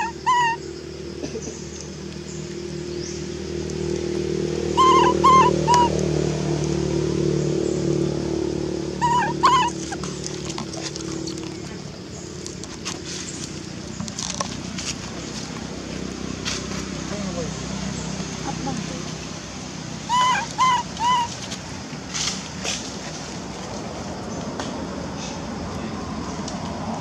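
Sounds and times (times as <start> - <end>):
baby monkey squeaking calls: 0.0 - 0.6, 4.7 - 6.0, 9.0 - 10.2, 20.0 - 21.4.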